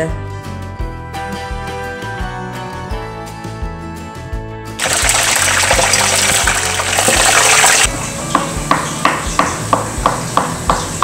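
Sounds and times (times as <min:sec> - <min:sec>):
background music: 0:00.0 - 0:11.0
food sizzling in oil: 0:04.8 - 0:07.9
knife chopping on cutting board: 0:08.3 - 0:11.0.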